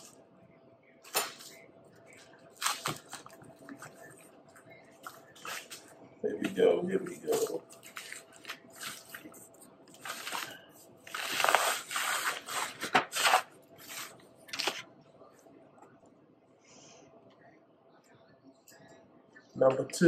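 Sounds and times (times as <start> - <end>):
paper wrapping rustling: 1.0 - 14.9.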